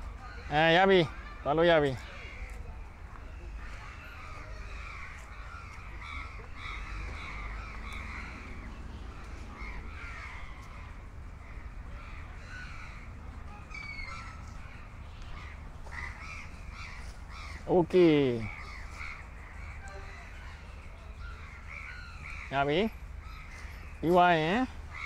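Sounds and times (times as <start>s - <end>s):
birds calling: 0.0s - 25.0s.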